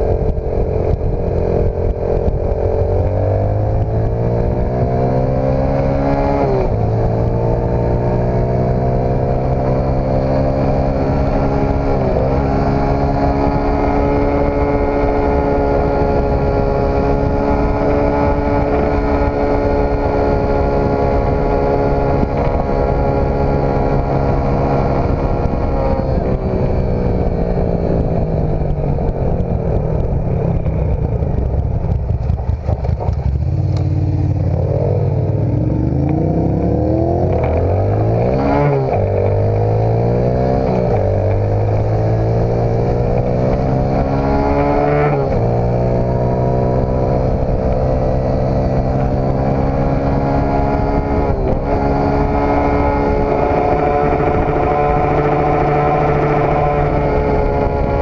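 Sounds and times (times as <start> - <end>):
dirt bike engine revving: 33.4 - 58.0.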